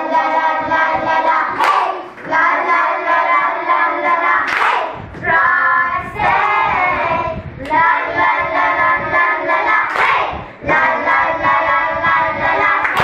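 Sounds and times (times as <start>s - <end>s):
children singing in unison: 0.0s - 13.0s.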